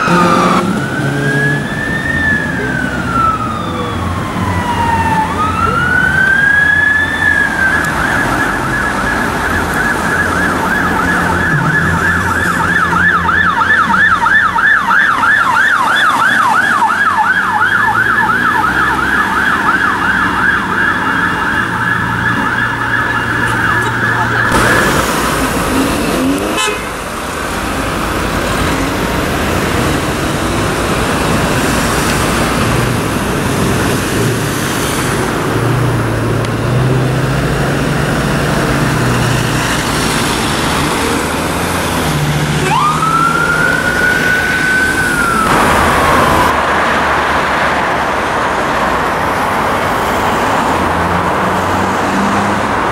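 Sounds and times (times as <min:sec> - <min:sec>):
siren yelping: 0:00.0 - 0:25.2, 0:42.1 - 0:46.5
siren wailing: 0:00.0 - 0:26.7, 0:37.2 - 0:46.6
road traffic engine hum: 0:00.0 - 0:52.9.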